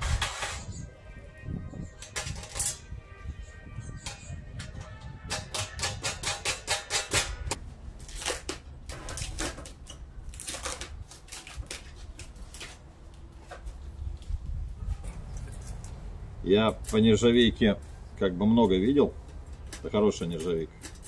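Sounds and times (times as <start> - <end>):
metal panels clicking and clinking: 2.0 - 2.9, 4.0 - 7.6.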